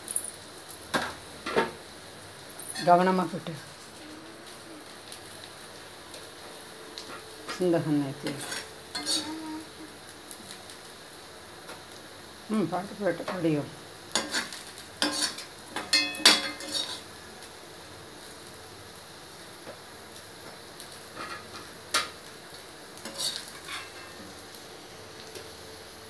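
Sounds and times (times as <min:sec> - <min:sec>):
faint frying sizzle: 0:00.0 - 0:26.0
metal spoon clinking on a pan: 0:02.7 - 0:03.0, 0:08.4 - 0:09.3, 0:14.2 - 0:17.0.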